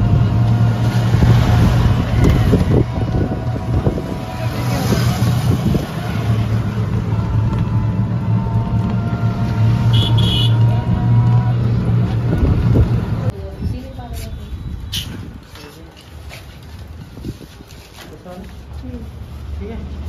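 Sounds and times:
wind rushing over microphone: 0:00.0 - 0:06.7, 0:12.1 - 0:13.8, 0:16.9 - 0:17.8
motorcycle engine cruising: 0:00.0 - 0:13.3.

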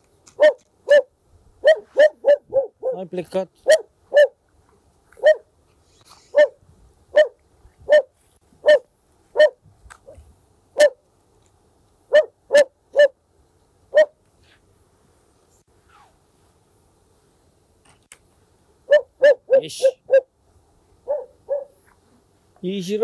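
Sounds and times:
dog barking: 0:00.4 - 0:03.0, 0:03.6 - 0:04.4, 0:05.2 - 0:05.5, 0:06.3 - 0:09.6, 0:10.8 - 0:11.0, 0:12.1 - 0:13.2, 0:13.9 - 0:14.2, 0:18.9 - 0:20.3, 0:21.0 - 0:21.8.

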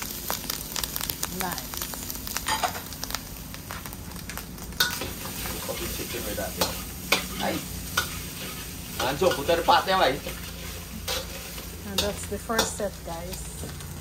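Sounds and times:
fried rice sizzling in a pot: 0:00.0 - 0:14.0
metal spoon scraping a pot: 0:06.6 - 0:12.8.

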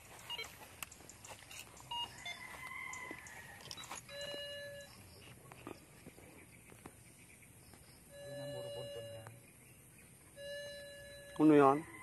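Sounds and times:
metal detector beep: 0:00.0 - 0:05.1, 0:08.1 - 0:09.4, 0:10.3 - 0:12.0
footsteps through undergrowth: 0:00.0 - 0:08.0
scattered clicks: 0:00.3 - 0:02.0.

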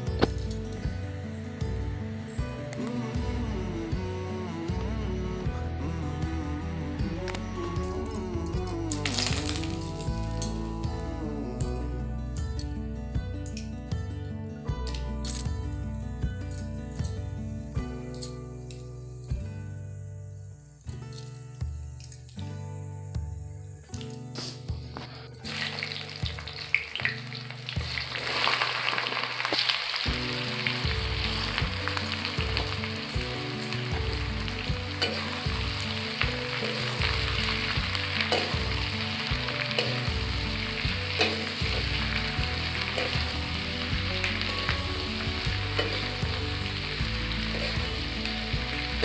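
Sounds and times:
onions sizzling in hot oil: 0:25.4 - 0:49.0.

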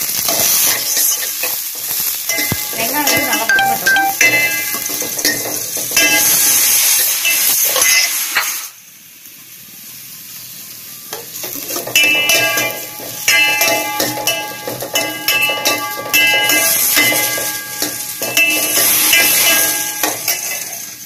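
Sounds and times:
onions sizzling in oil: 0:00.0 - 0:21.0
ladle scraping and clinking on pan: 0:11.4 - 0:20.9.

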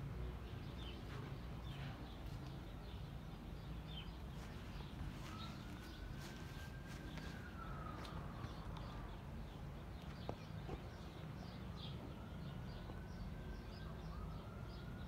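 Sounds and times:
small birds chirping: 0:00.0 - 0:15.0
faint whistling tone: 0:05.2 - 0:08.4.

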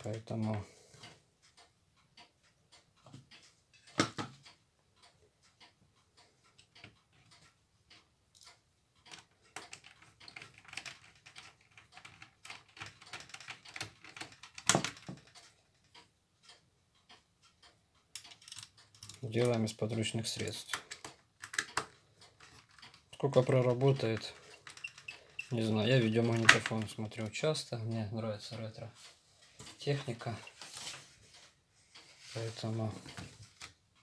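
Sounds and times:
clicks and rattles of plastic parts: 0:08.3 - 0:16.0, 0:18.1 - 0:27.7.

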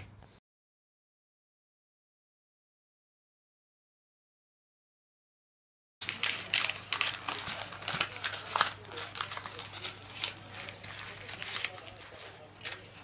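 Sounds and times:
paper crinkling: 0:06.0 - 0:13.0.

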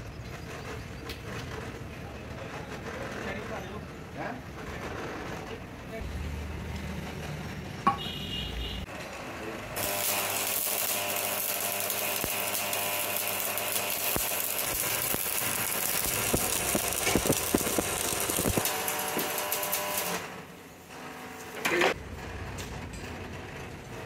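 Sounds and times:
arc welding crackle and sizzle: 0:08.8 - 0:22.8.

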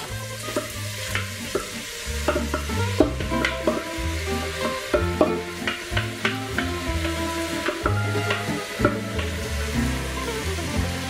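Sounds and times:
food sizzling in hot oil: 0:00.0 - 0:11.0
sharp taps on bowl and pot: 0:00.6 - 0:03.8.

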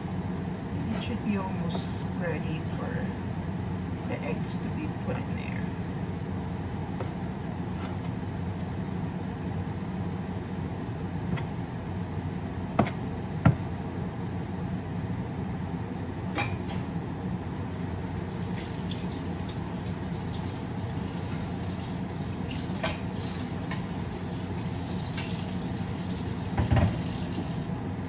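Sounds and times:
pan simmering hiss: 0:17.8 - 0:28.0.

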